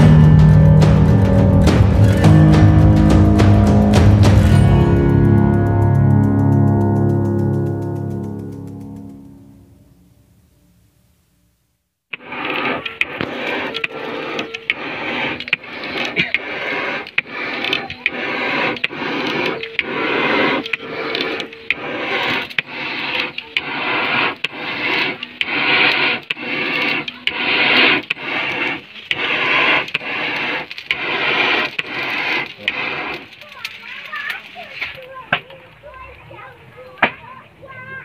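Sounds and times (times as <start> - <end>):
bellows whooshing air: 12.1 - 38.0.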